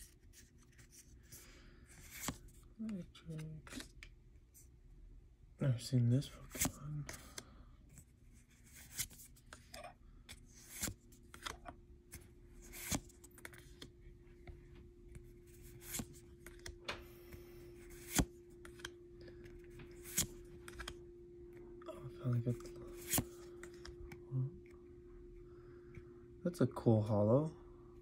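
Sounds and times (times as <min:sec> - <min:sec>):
faint steady hum: 0:00.0 - 0:28.0
cards clicking and snapping: 0:08.6 - 0:13.9, 0:15.8 - 0:17.0, 0:17.9 - 0:21.0, 0:22.6 - 0:24.2.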